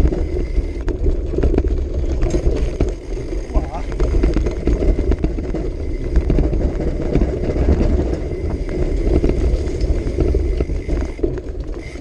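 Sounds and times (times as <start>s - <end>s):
bike rattling and clacking: 0.0s - 12.0s
tyres crunching over stones: 0.0s - 12.0s
wind rumble on microphone: 0.0s - 12.0s.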